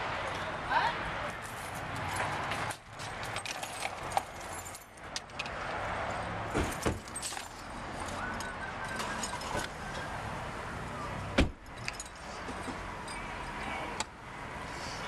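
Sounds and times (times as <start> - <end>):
car keys jangling: 1.5 - 9.8, 11.5 - 13.7.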